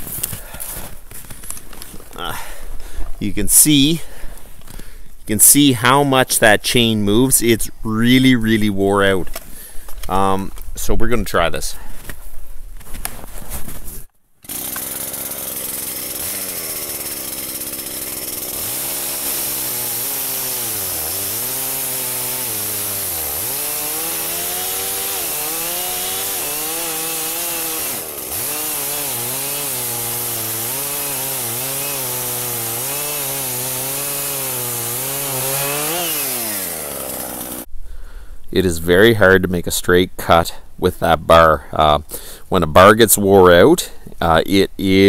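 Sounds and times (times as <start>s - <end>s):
chainsaw cutting log: 14.4s - 37.7s.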